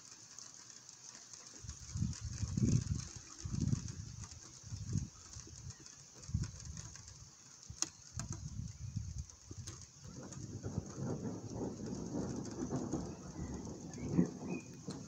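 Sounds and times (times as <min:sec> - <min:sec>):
rain falling: 0:00.0 - 0:15.0
raindrop ticks: 0:00.0 - 0:15.0
low thunder rumbling: 0:10.0 - 0:15.0.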